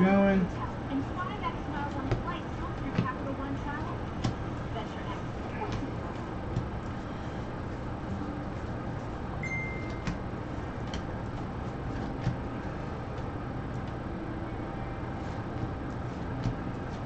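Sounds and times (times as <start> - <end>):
background hum: 0.0 - 17.0
high beep-like tone: 9.4 - 10.0
cards flipped through by hand: 10.8 - 12.4.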